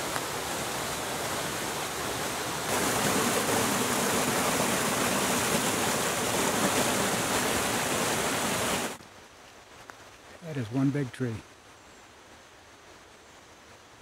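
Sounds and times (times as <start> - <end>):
creek rushing over boulders: 0.0 - 9.0.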